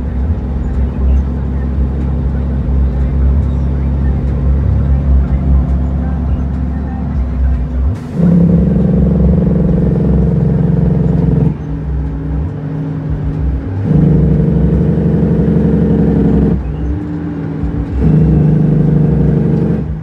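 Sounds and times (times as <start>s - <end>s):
truck diesel engine from cab: 0.0s - 20.0s.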